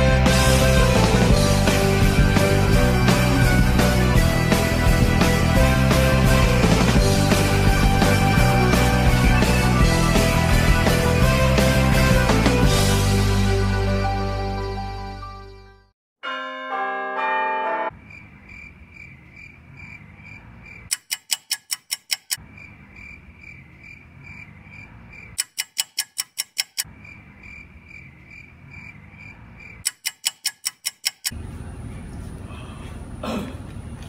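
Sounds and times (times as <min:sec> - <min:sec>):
chime-like melody: 0:16.2 - 0:17.9
faint regular ticking: 0:20.7 - 0:22.4, 0:25.1 - 0:26.9, 0:29.6 - 0:31.4.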